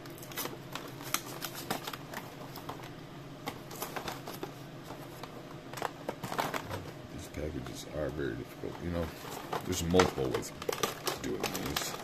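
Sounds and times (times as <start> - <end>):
cardboard tearing: 9.4 - 12.0.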